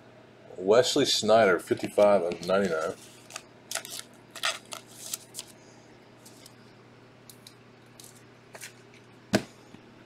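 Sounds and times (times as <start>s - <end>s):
card scraping into plastic sleeve: 1.8s - 5.5s.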